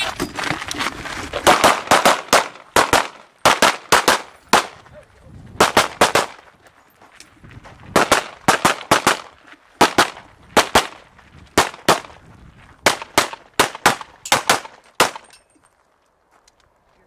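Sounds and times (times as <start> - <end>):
pistol gunshots: 1.4 - 4.8, 5.6 - 6.4, 7.9 - 11.0, 11.6 - 12.1, 12.8 - 15.4.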